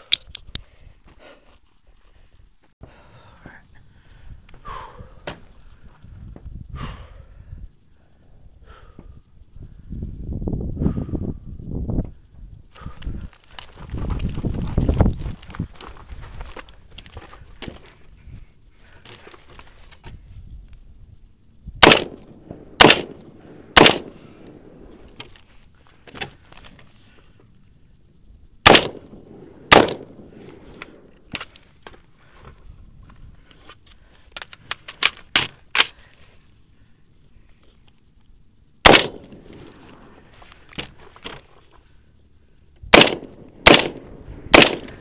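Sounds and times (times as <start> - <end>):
rifle gunshots: 21.8 - 24.9, 28.6 - 30.3, 38.8 - 39.5, 42.9 - 45.0.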